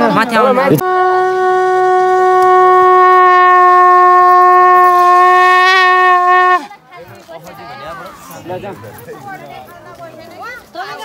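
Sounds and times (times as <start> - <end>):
long horn note: 0.8 - 6.7.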